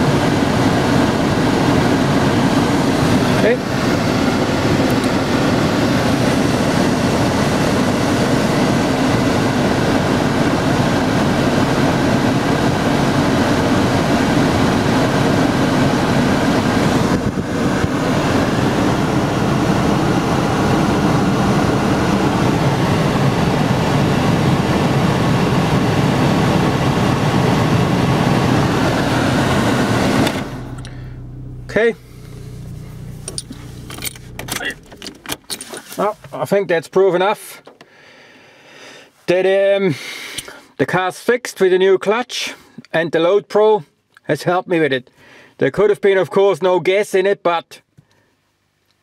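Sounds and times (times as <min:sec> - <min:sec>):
car engine running: 0:00.0 - 0:36.7
blower fan air rush: 0:00.0 - 0:36.8.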